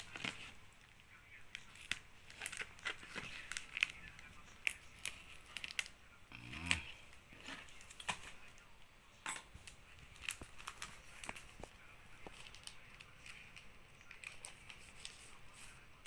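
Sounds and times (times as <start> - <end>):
plastic sleeves clicking and crinkling: 0.0 - 6.0, 9.6 - 15.8.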